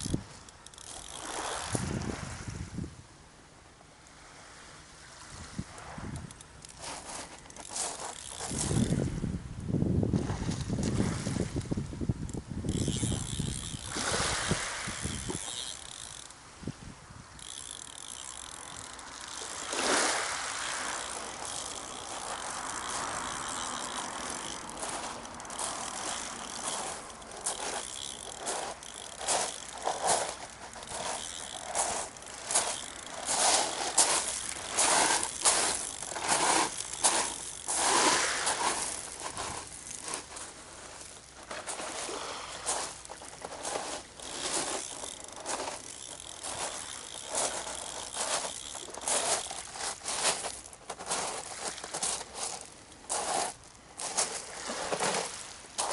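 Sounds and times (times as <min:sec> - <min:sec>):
fishing reel clicking: 0:00.0 - 0:02.1, 0:06.1 - 0:09.2, 0:12.2 - 0:16.6, 0:17.3 - 0:55.9
wind buffeting microphone: 0:01.6 - 0:03.0, 0:08.3 - 0:15.7.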